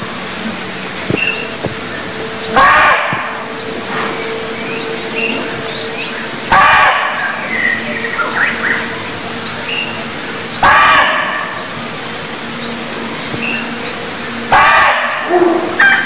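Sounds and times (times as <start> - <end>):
small birds chirping: 1.1 - 2.6, 3.5 - 6.6, 7.2 - 10.8, 11.5 - 14.4
deer barking: 2.5 - 3.3, 6.5 - 7.3, 10.6 - 11.6, 14.5 - 16.0.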